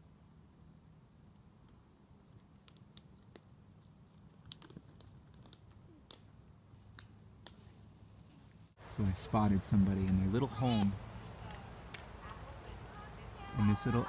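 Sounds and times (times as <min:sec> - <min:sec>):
light crackles and ticks: 0:11.4 - 0:13.1.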